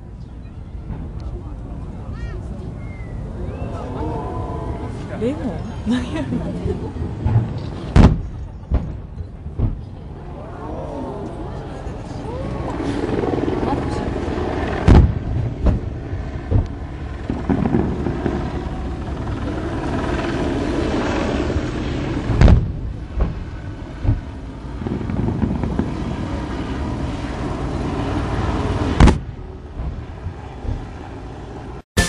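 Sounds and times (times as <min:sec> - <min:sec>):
steady background rumble: 0:00.0 - 0:31.8.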